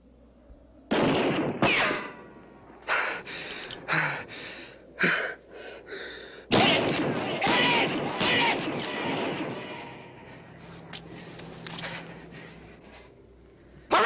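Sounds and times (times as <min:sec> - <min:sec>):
man gasping and breathing hard: 0:02.9 - 0:06.5.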